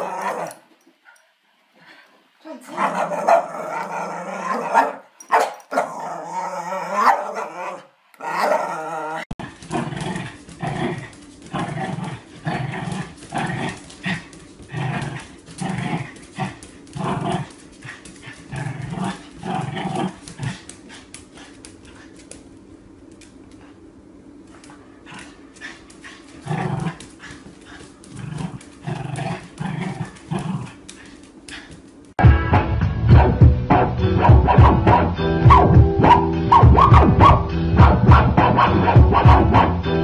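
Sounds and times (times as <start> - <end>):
small dog growling: 5.8 - 21.0, 26.4 - 31.8.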